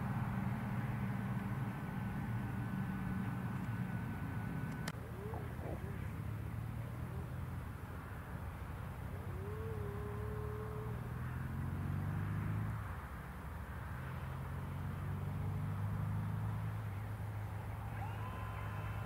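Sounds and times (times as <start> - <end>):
low engine drone: 0.0 - 12.3.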